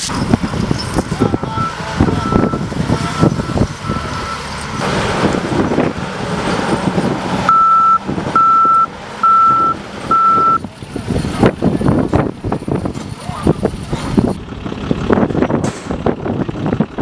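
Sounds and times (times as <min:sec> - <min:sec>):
engine and movement noise: 0:00.0 - 0:17.0
reversing alarm beeping: 0:01.3 - 0:04.7, 0:07.5 - 0:10.6.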